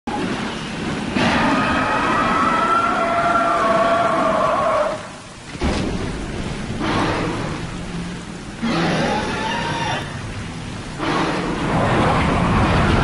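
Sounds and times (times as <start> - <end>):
monster roar: 8.6 - 10.1.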